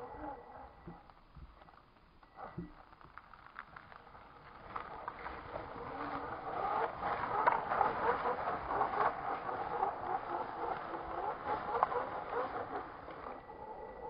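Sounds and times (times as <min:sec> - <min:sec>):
tyres crunching through snow: 0:00.0 - 0:14.0
rc car motor whirring: 0:04.1 - 0:14.0.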